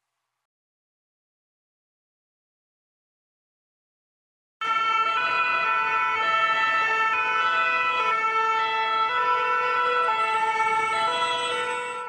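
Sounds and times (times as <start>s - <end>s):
two-tone ambulance siren: 4.6s - 12.0s.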